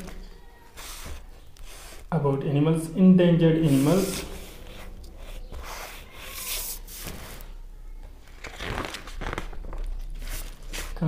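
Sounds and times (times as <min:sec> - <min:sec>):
paper pages rustling: 0:08.2 - 0:11.0.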